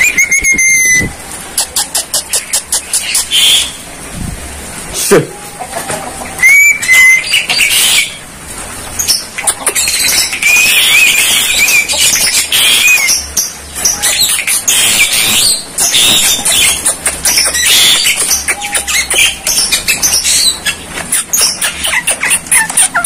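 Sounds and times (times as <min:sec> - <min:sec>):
whistled warble: 0:00.0 - 0:01.1
mynas squawking and chattering: 0:00.0 - 0:03.9, 0:05.0 - 0:08.2, 0:09.0 - 0:23.0.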